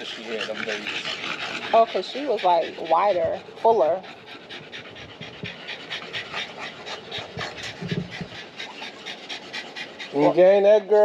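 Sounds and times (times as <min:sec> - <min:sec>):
dog panting rapidly: 0:00.0 - 0:11.0.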